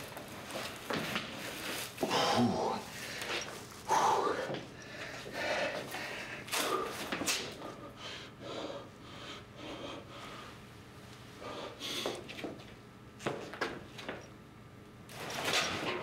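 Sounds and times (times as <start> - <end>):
person snorting: 2.0 - 3.0
person breathing heavily: 2.0 - 10.7, 11.4 - 12.2.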